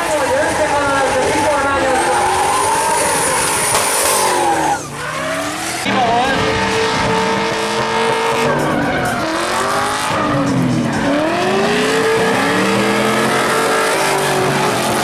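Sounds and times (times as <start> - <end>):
car engines revving: 0.0 - 15.0
tyres squealing and hissing: 1.6 - 5.8.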